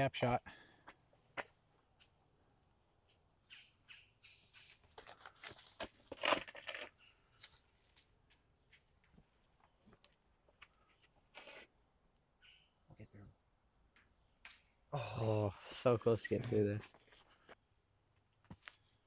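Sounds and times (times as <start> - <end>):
shoes scuffing and crunching: 4.4 - 11.7
high insect buzz: 10.8 - 12.8.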